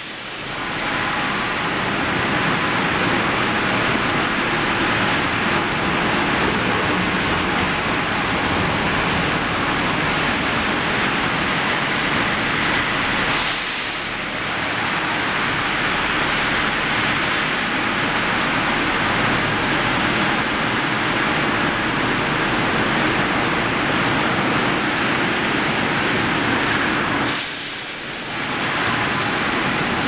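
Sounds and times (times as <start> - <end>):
rolling mill machinery: 0.0 - 30.0
brief hiss: 27.2 - 28.0.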